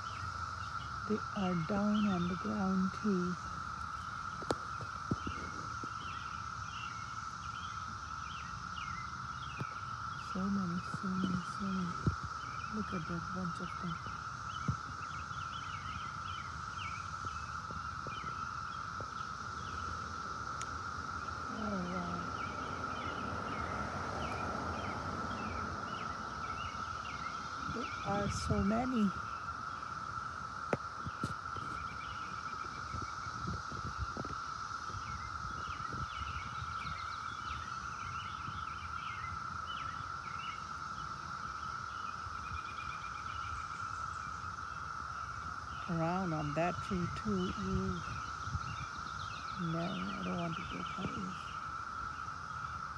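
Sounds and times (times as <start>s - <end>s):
cicadas droning: 0.0s - 52.9s
small birds chirping: 0.0s - 52.9s.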